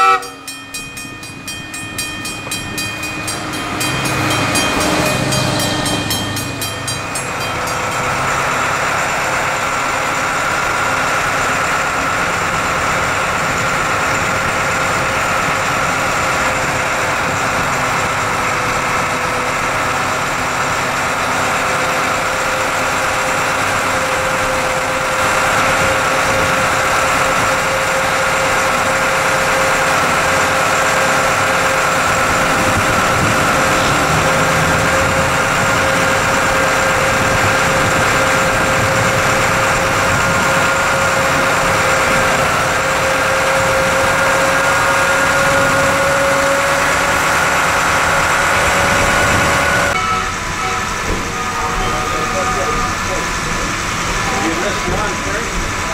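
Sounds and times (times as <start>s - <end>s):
rail car engine drone: 0.0s - 55.9s
steady whine: 47.1s - 55.9s.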